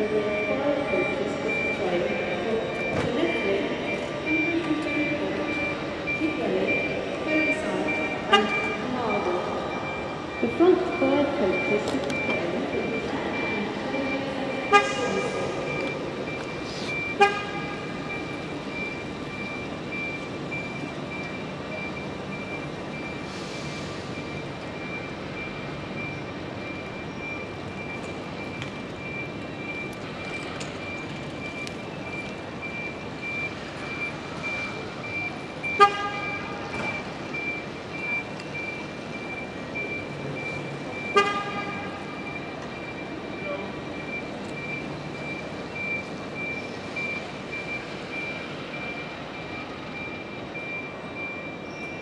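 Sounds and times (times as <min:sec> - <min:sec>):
high-pitched warning beeping: 0:00.0 - 0:52.0
vehicle horn toots: 0:14.7 - 0:15.2, 0:17.2 - 0:17.7, 0:35.8 - 0:36.5, 0:41.1 - 0:42.0.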